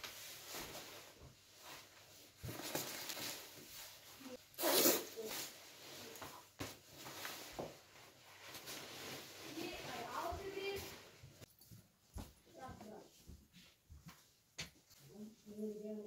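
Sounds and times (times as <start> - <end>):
padded jacket rustling: 0.0 - 11.2.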